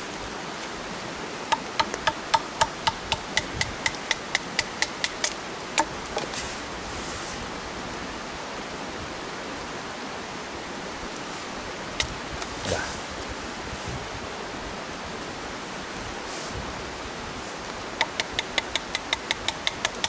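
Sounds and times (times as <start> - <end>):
heavy rain hiss: 0.0 - 20.0
wooden baton knocking knife spine: 1.5 - 6.3.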